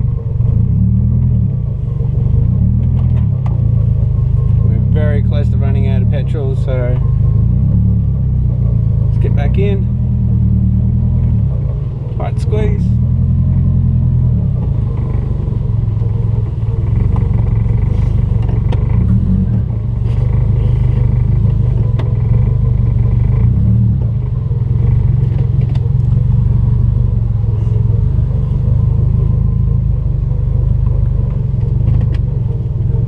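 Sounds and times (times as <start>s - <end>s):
car engine idling: 0.0s - 33.0s.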